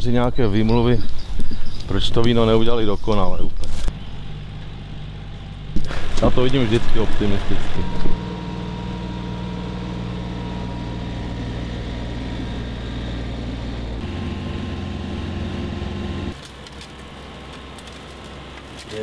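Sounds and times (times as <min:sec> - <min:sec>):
tractor diesel engine running: 0:03.8 - 0:19.0.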